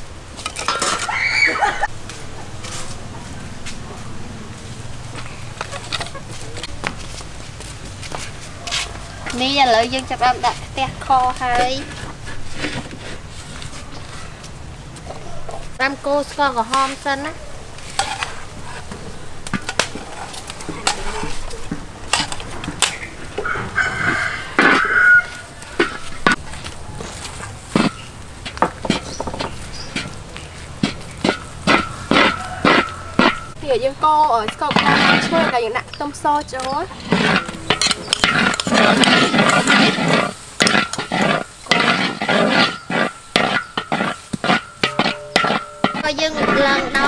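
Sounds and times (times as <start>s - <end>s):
metal utensils scraping a wok: 0.4s - 1.1s, 17.8s - 26.4s, 27.1s - 47.0s
rooster crowing: 23.4s - 25.6s, 31.9s - 33.6s.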